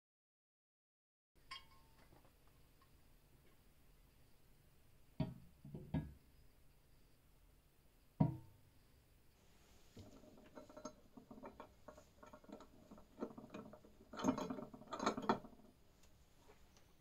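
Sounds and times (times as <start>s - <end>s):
metal clattering: 10.0s - 15.7s
metal clicks and rattles: 10.0s - 15.7s.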